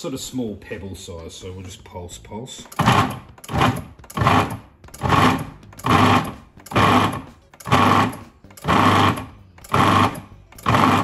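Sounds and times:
food processor pulsing: 2.8s - 11.0s.

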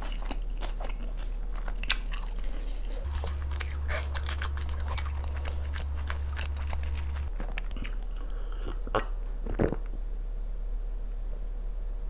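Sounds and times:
wet crunchy chewing: 0.0s - 9.8s.

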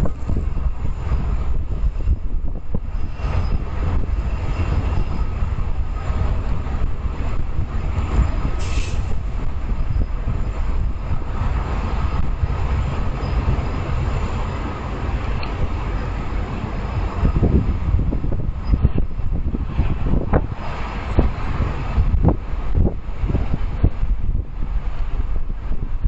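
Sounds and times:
freight train rumbling past: 0.0s - 26.0s.

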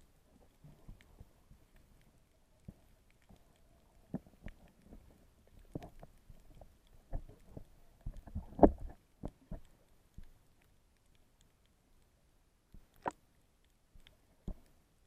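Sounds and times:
muffled underwater knocks and thumps: 7.1s - 9.7s.

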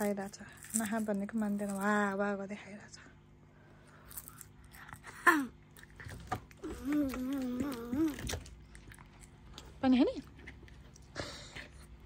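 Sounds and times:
child crunching chips: 0.0s - 2.1s, 3.9s - 9.7s.

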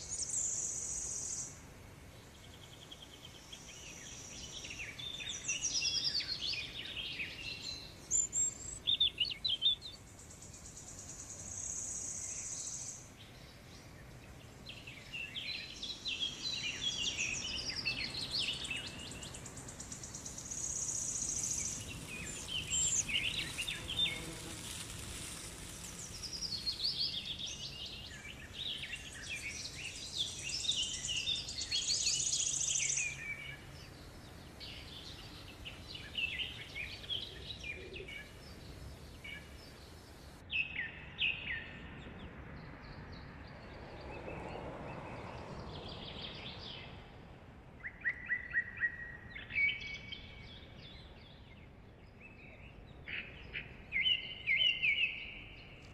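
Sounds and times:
birds chirping: 2.2s - 41.9s
high insect drone: 17.3s - 37.1s.

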